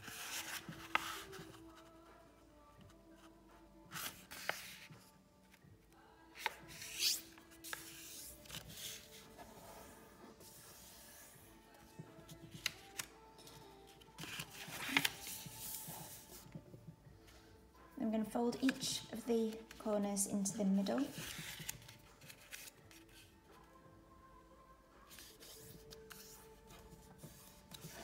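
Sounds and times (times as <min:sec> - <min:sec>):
soft background music: 0:00.0 - 0:28.0
paper being folded and crinkling: 0:04.0 - 0:04.9, 0:12.5 - 0:16.4, 0:21.0 - 0:23.3, 0:25.1 - 0:28.0.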